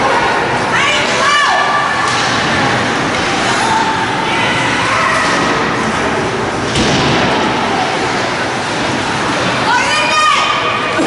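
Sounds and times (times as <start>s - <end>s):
arena crowd noise: 0.0s - 11.0s
thud against rink boards: 6.7s - 7.5s.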